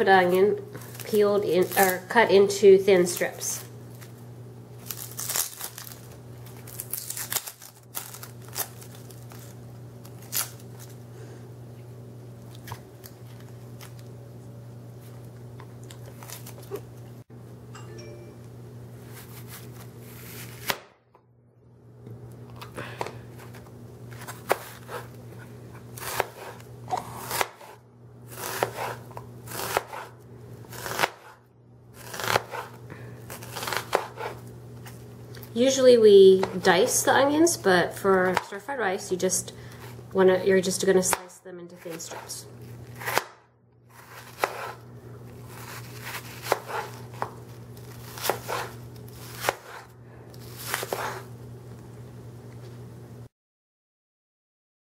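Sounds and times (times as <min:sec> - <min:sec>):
steady low hum: 0:00.0 - 0:43.2
onion skin crackling and tearing: 0:04.8 - 0:11.0, 0:15.2 - 0:17.0, 0:30.7 - 0:31.3, 0:31.9 - 0:35.6, 0:43.9 - 0:51.2.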